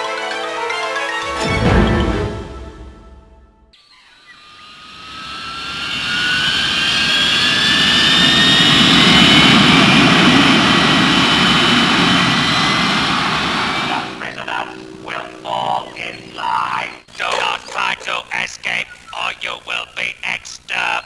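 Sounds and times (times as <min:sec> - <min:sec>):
jet engine roar with whines: 0:03.8 - 0:17.1.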